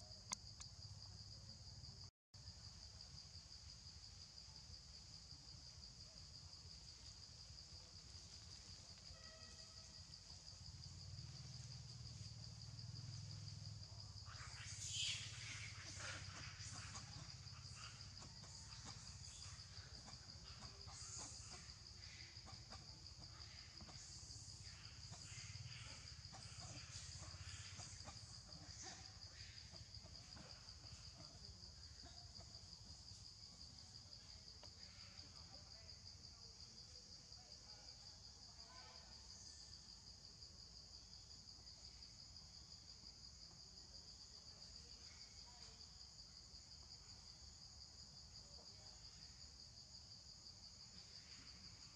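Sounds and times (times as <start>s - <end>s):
insects droning: 0.0s - 51.9s
faint ticks and rustles: 6.7s - 9.2s.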